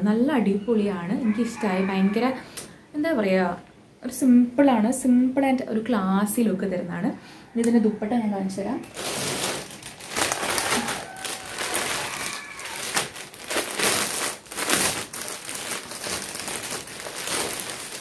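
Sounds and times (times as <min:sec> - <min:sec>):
plastic packaging crinkling: 0:08.8 - 0:18.0.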